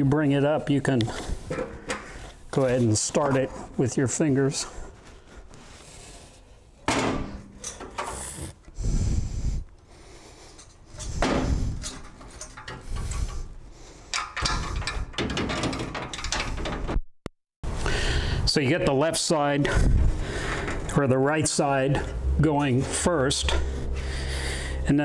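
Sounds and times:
radiator clunking and scraping: 0:01.1 - 0:03.8.

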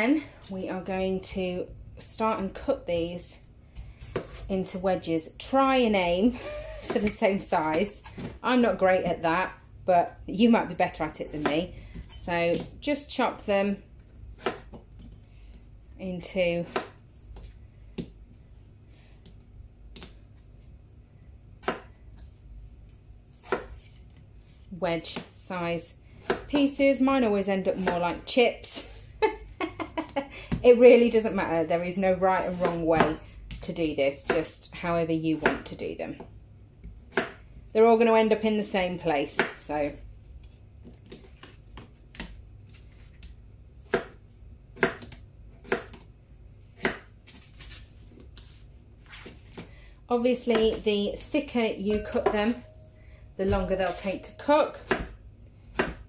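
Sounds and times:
knife chopping potato on plastic board: 0:21.6 - 0:22.0, 0:23.4 - 0:23.9, 0:26.2 - 0:26.5, 0:36.8 - 0:37.4, 0:39.3 - 0:39.6, 0:43.2 - 0:44.2, 0:44.8 - 0:46.1, 0:46.8 - 0:47.2, 0:53.5 - 0:56.0.

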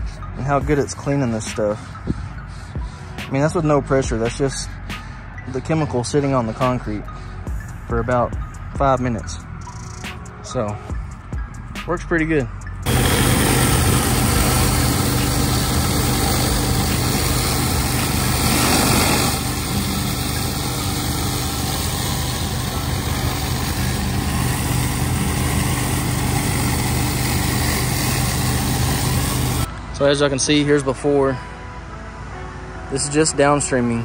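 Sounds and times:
pressure washer engine running: 0:12.9 - 0:29.7
water jets hissing: 0:12.9 - 0:29.7.

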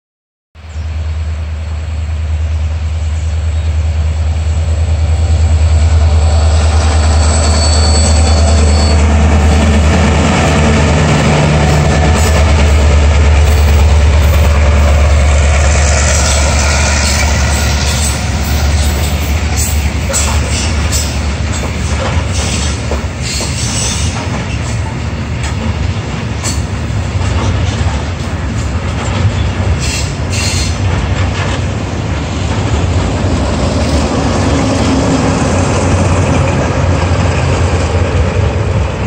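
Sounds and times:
diesel locomotive drone: 0:00.6 - 0:39.0
train wheel squeal: 0:06.1 - 0:09.6, 0:15.9 - 0:25.0, 0:29.3 - 0:30.8.

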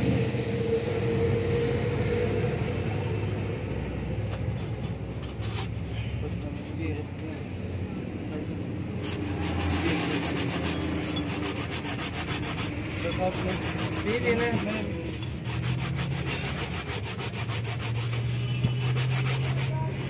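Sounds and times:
hand rubbing metal cylinder: 0:09.0 - 0:20.0.

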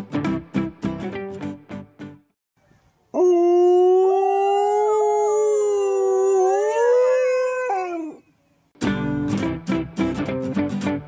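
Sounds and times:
dog howling: 0:03.2 - 0:08.2.

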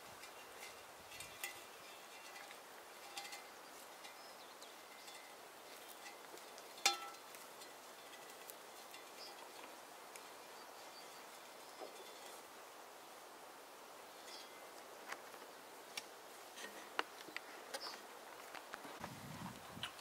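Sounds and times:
metallic clink: 0:00.2 - 0:05.4, 0:06.0 - 0:09.4.

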